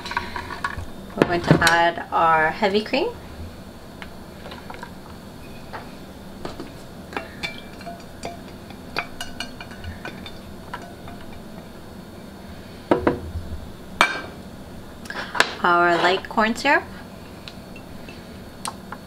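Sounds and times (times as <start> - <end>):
utensils clinking on saucepan: 7.1 - 11.6.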